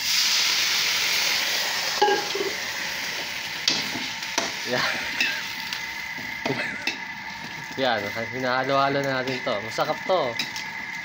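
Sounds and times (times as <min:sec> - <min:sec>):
hot oil sizzling in wok: 0:00.0 - 0:11.0.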